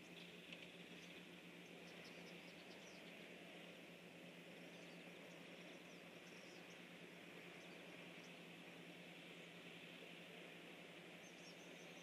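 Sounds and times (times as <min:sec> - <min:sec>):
faint insect chorus: 0:00.0 - 0:12.0.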